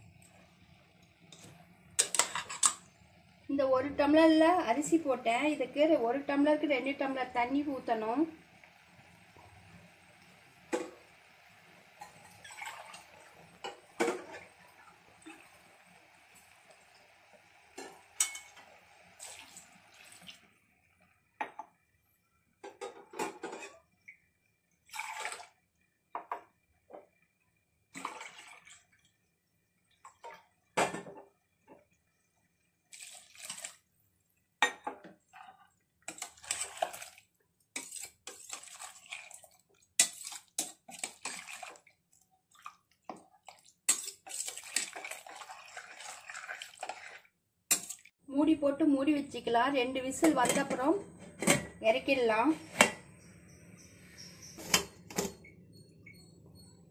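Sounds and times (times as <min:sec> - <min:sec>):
water pouring into pot: 0:08.3 - 0:21.0, 0:24.8 - 0:25.6, 0:28.0 - 0:29.2, 0:32.8 - 0:33.9, 0:35.3 - 0:48.1
steel ladle clinking on pot: 0:17.8 - 0:18.6.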